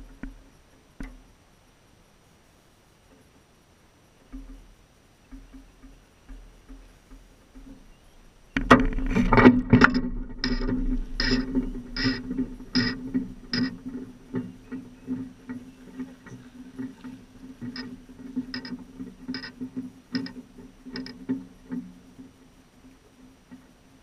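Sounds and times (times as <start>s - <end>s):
steady low drone: 8.1s - 21.3s
bite alarm beeping: 10.4s - 13.8s.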